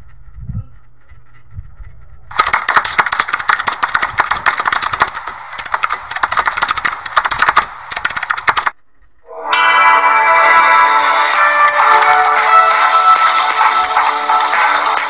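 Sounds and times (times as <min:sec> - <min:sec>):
keyboard typing clatter: 0:02.3 - 0:08.8.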